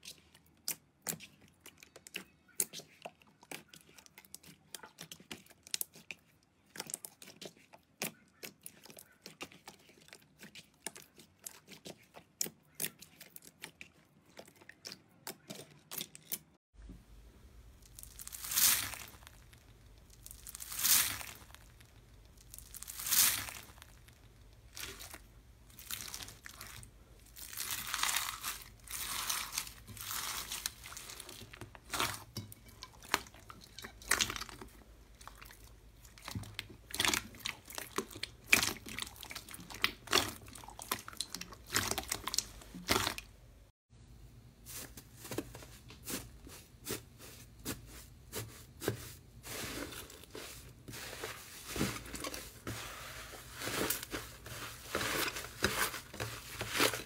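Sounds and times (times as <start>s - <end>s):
crunchy crackling slime: 17.8s - 43.4s, 47.7s - 57.0s.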